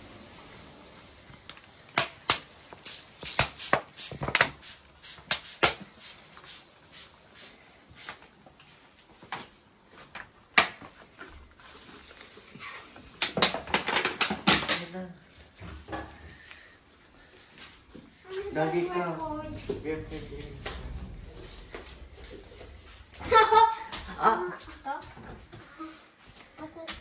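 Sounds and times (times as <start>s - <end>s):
spray bottle spritzes: 2.1s - 8.2s.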